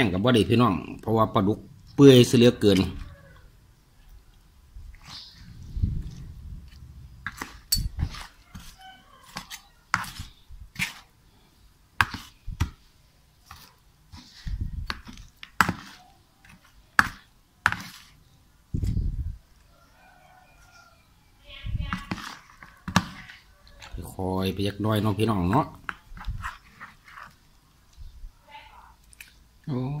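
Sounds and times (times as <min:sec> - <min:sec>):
metal spoon scraping plastic bowl: 0:04.9 - 0:11.1, 0:13.4 - 0:18.2, 0:21.9 - 0:23.4, 0:25.8 - 0:27.4.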